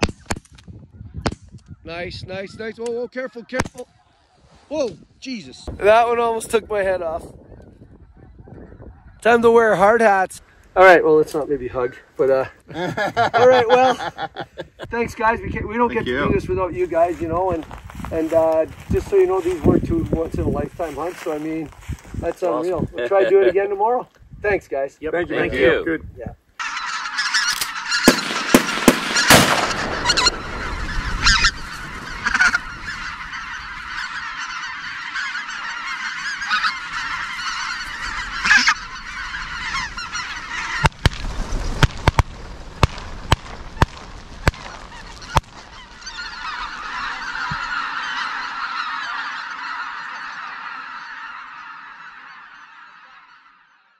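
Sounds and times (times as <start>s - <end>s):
flock of geese calling: 0.0s - 4.6s, 5.3s - 24.0s, 25.1s - 25.8s, 26.5s - 53.9s
sharp bangs: 27.6s - 32.4s.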